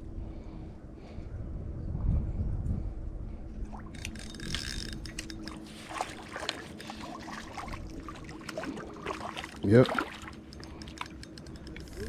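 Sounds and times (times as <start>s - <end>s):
water splashing and trickling: 3.6s - 12.0s.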